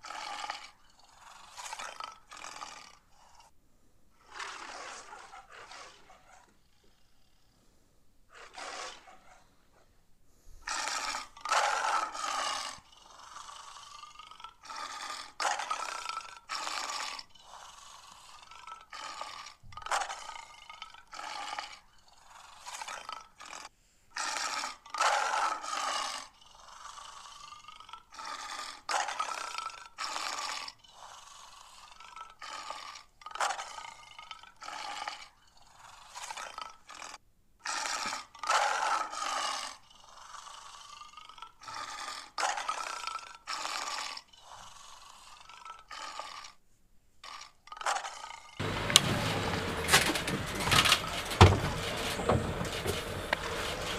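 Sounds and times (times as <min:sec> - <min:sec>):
lion roaring and growling: 0:48.6 - 0:53.9.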